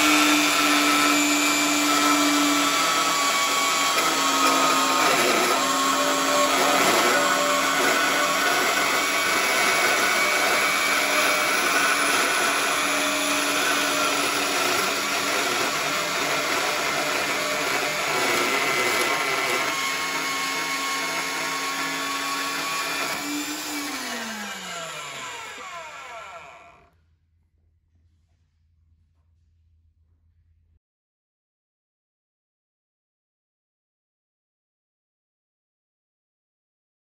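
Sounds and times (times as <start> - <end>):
band saw cutting metal: 0.0 - 26.8.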